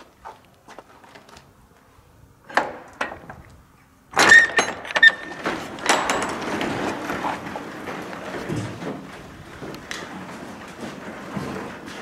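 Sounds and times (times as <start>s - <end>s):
roll-up door clattering and squeaking: 4.2s - 12.0s.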